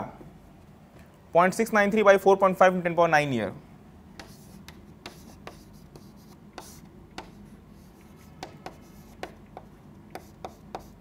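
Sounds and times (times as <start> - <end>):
chalk tapping and scratching: 4.2 - 11.0.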